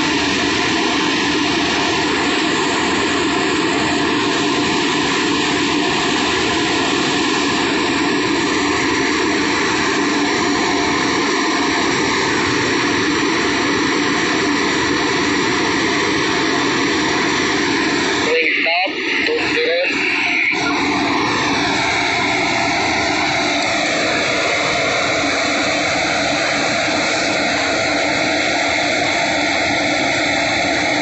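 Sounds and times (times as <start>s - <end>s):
heavy construction machinery droning: 0.0s - 31.0s.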